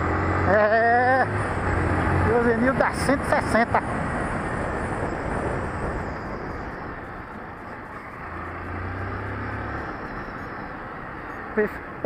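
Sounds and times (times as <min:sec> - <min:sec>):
motorcycle engine drone: 0:00.0 - 0:12.0
wind rush on microphone: 0:03.9 - 0:08.5.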